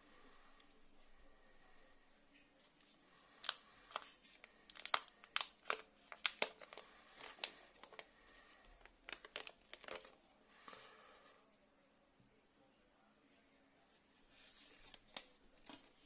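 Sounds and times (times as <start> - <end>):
plastic film peeling and crinkling: 3.4 - 8.1, 8.8 - 10.2.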